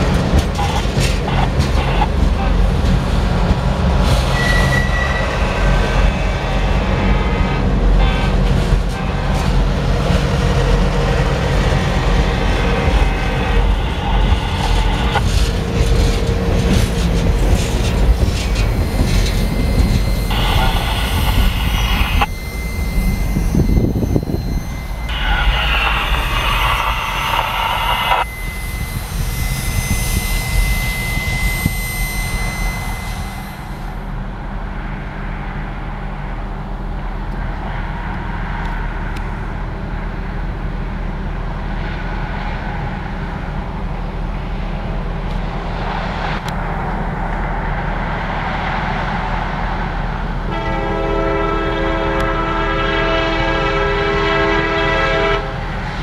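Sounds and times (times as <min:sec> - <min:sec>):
train wheels rumbling and clattering: 0:00.0 - 0:56.0
faint high squeal: 0:04.3 - 0:06.3, 0:17.8 - 0:34.2
high-pitched hissing: 0:18.3 - 0:34.0.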